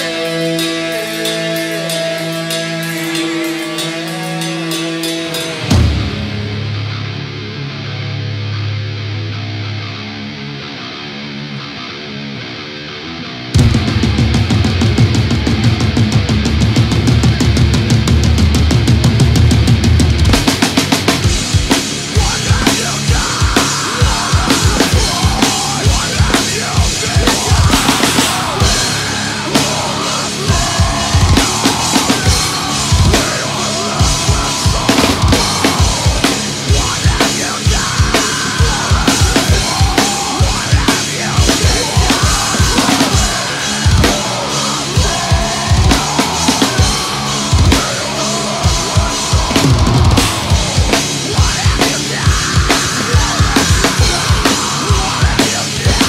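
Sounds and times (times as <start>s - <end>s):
heavy metal band playing: 0.0s - 56.0s
recorded metal guitars and vocals: 0.0s - 56.0s.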